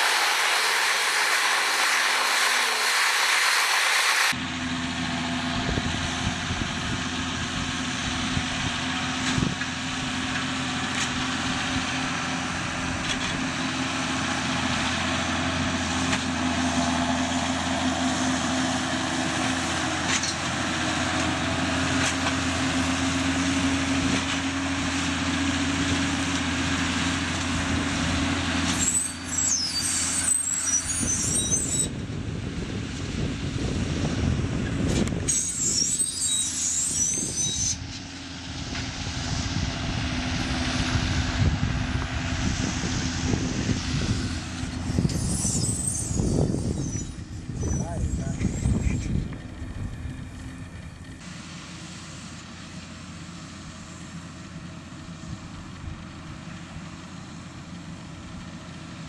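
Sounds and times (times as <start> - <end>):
high squealing: 0.0 - 4.4, 28.7 - 32.0, 35.2 - 38.2, 42.4 - 49.6
tractor diesel engine running: 0.0 - 59.0.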